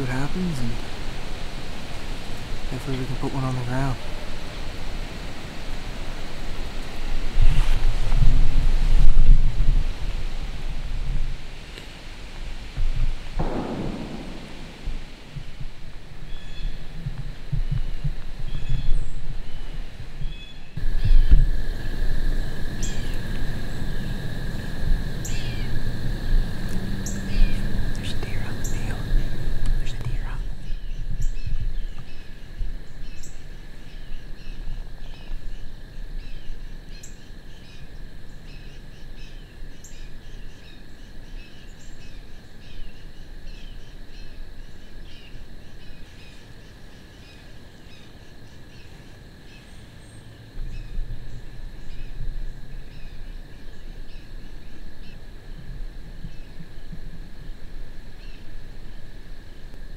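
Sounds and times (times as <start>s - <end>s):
insect drone: 0.0s - 59.9s
wind rumble on microphone: 4.0s - 36.9s, 50.4s - 59.9s.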